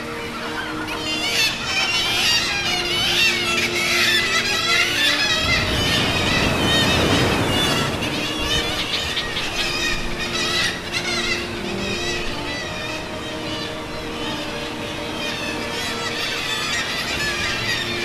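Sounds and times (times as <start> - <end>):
background music with low notes: 0.0 - 18.0
seabirds crying shrilly: 0.0 - 18.0
rushing noise: 5.3 - 9.6.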